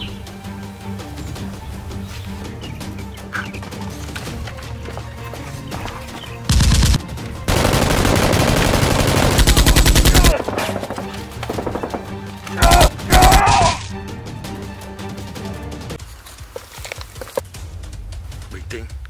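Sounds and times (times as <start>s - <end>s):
background music: 0.0s - 19.0s
automatic gunfire: 6.5s - 13.5s.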